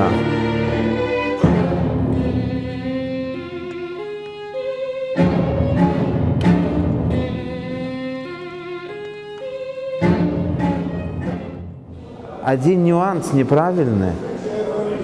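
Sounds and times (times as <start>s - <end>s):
solo violin: 0.0s - 12.0s
string orchestra playing: 0.0s - 12.2s.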